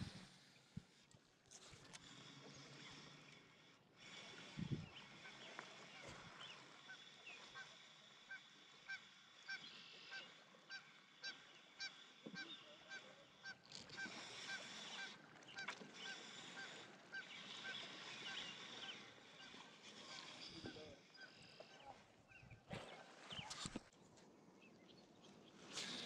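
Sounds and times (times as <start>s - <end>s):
bird honking: 6.9s - 20.3s.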